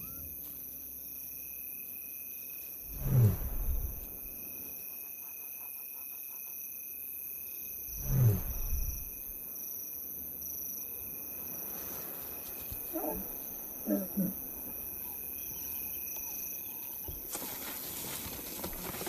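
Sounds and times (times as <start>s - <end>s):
crickets chirping: 0.0s - 19.0s
lioness low calls: 12.8s - 17.1s.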